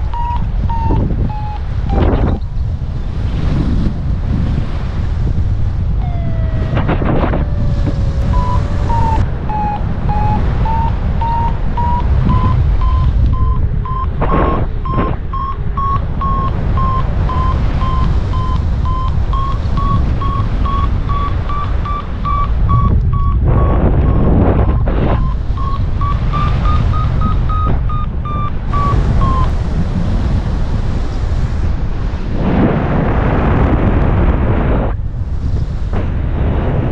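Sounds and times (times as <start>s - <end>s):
variometer beeping: 0.0s - 2.5s, 6.0s - 29.6s
wind buffeting microphone: 0.0s - 36.9s.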